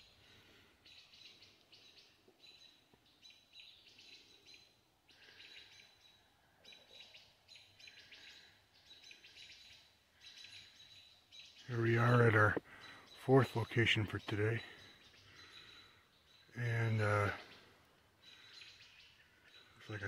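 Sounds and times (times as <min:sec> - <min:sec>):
faint bird chirping: 0:00.0 - 0:20.0.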